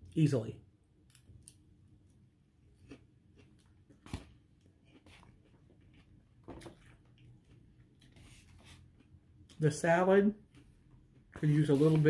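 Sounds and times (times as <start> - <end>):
person chewing: 1.1 - 8.1.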